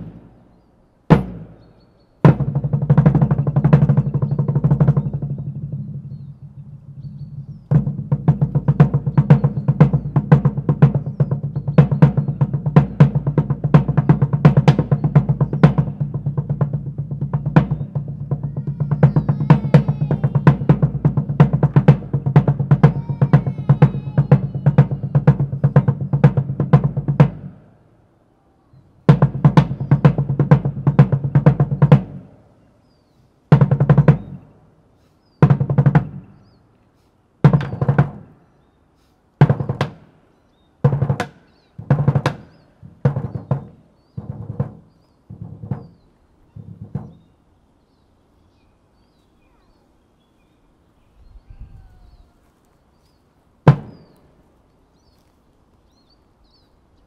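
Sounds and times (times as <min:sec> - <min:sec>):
drum rolls: 0:00.0 - 0:27.9, 0:29.0 - 0:32.5, 0:33.5 - 0:34.8, 0:35.4 - 0:36.6, 0:37.4 - 0:38.5, 0:39.4 - 0:47.4, 0:53.6 - 0:54.4.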